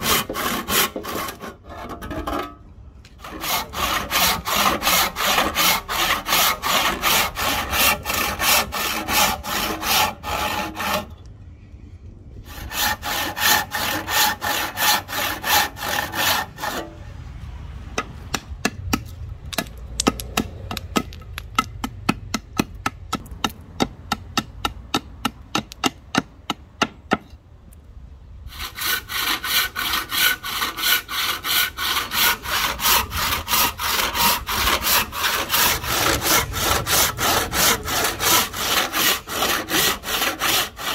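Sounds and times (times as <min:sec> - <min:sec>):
hand saw cutting wood: 0:00.0 - 0:02.6, 0:03.2 - 0:11.2, 0:12.5 - 0:17.0, 0:28.5 - 0:40.9.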